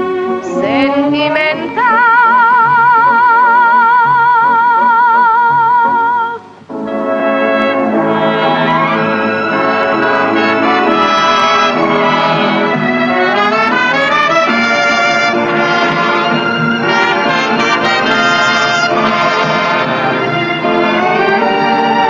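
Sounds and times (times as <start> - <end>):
orchestra with prominent brass: 6.7 - 22.0.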